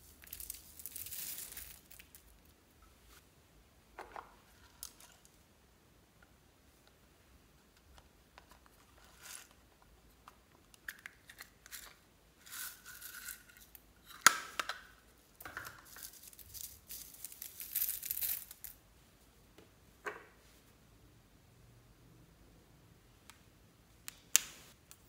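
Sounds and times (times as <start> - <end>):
sequins rustling and crinkling: 0.0 - 3.3, 4.4 - 5.4, 11.6 - 14.1, 15.2 - 19.3.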